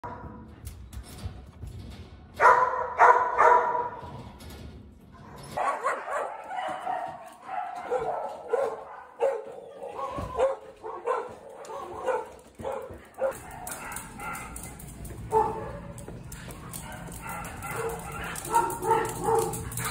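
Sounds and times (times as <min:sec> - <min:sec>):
dog barking: 0:02.4 - 0:04.0, 0:05.5 - 0:16.1, 0:16.7 - 0:19.9
dog yipping and whining: 0:09.2 - 0:10.7.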